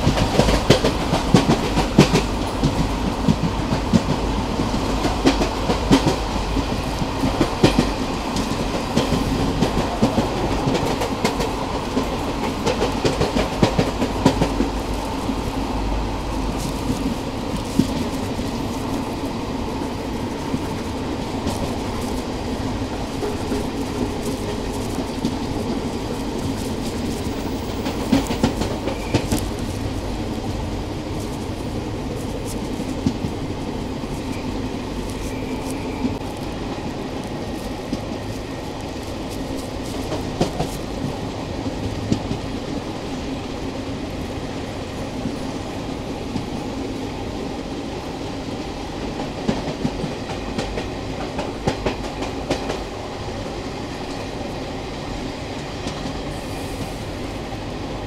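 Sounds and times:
wheels clicking over rail joints: 0.0 - 43.4
train rumbling: 0.0 - 58.0.

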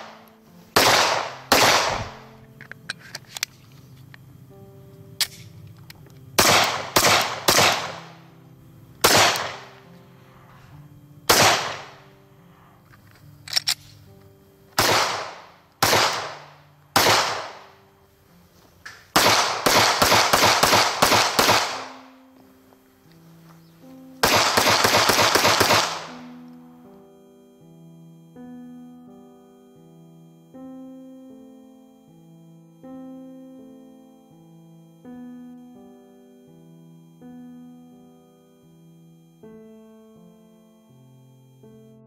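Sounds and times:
quiet background music: 0.0 - 42.0
pistol shots with echo: 0.8 - 2.3, 6.4 - 8.2, 9.0 - 9.7, 11.3 - 12.0, 14.8 - 17.7, 19.1 - 22.1, 24.2 - 26.3.

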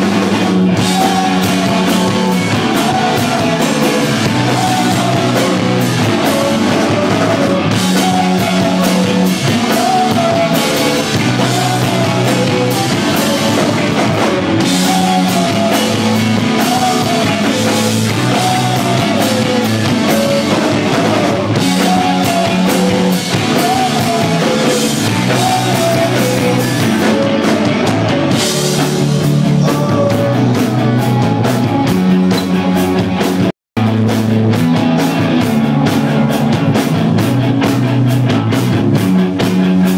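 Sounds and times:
rock band playing live: 0.0 - 39.9
person singing: 0.7 - 31.7.

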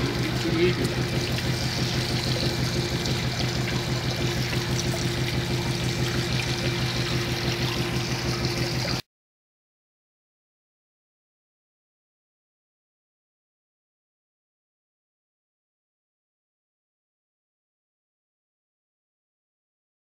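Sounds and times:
mechanical hum: 0.0 - 9.0
water trickling and pouring: 0.0 - 9.0.

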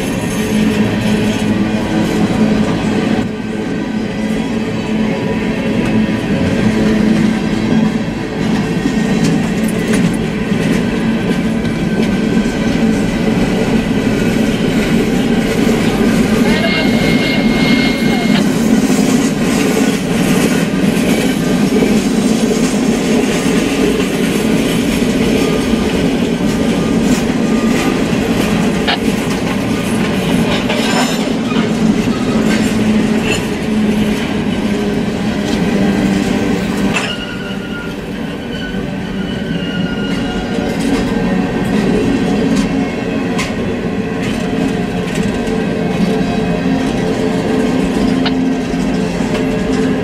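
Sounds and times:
train wheels rumbling on rails: 0.0 - 50.0
clacks at rail joints: 5.7 - 38.0, 40.0 - 50.0
wheel squeals: 15.9 - 19.2, 36.9 - 40.9.

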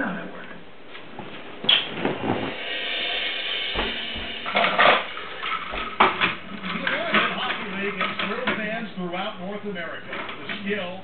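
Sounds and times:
toy train banging and clattering: 4.4 - 8.8.

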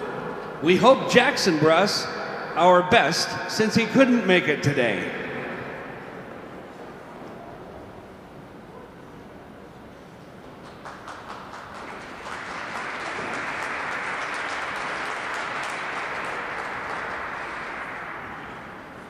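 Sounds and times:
audience applause: 10.4 - 19.0.

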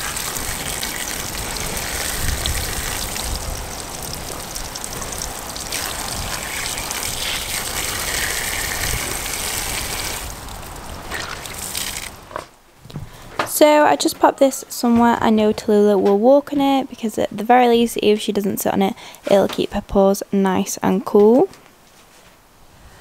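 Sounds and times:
tap water gushing onto towel: 0.0 - 12.1.

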